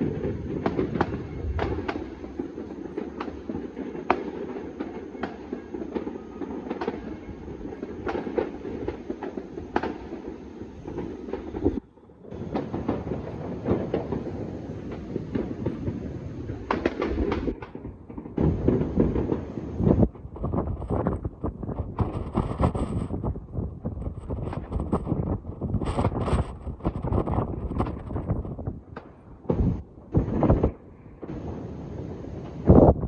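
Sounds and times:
distant fireworks crackling: 0.0s - 33.0s
firecracker bangs: 10.9s - 33.0s.

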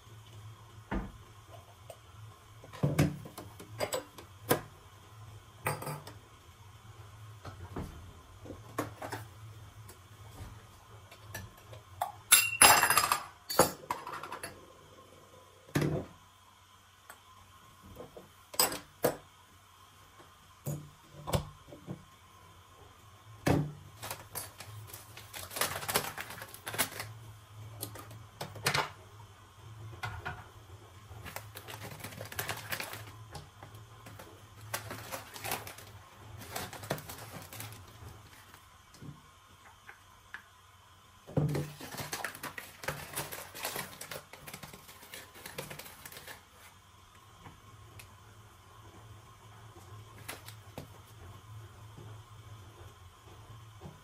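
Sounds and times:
paper coffee bag crinkling: 24.0s - 27.3s, 31.1s - 33.3s, 34.0s - 38.7s, 41.5s - 46.8s.

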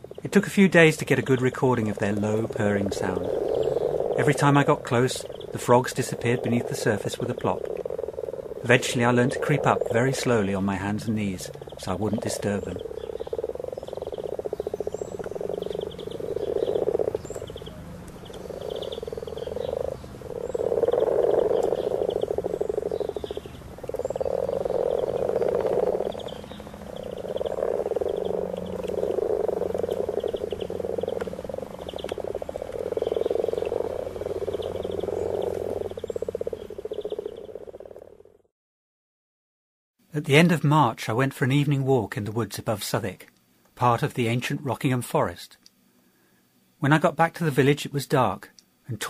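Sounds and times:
frogs purring chorus: 0.0s - 38.5s.

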